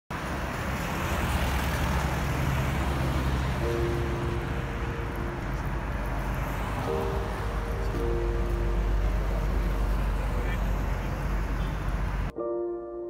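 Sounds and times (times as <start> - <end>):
car engine and tyres rumbling: 0.1 - 12.3
music with held notes: 3.4 - 13.0.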